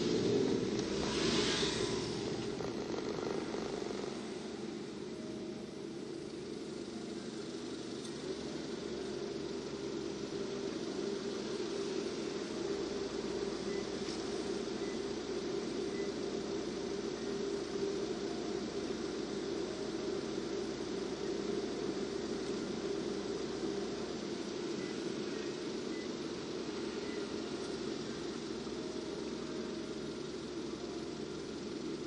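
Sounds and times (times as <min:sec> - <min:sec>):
hiss: 0:00.0 - 0:02.6
car engine drone inside cabin: 0:00.0 - 0:32.0
road noise: 0:00.0 - 0:32.0.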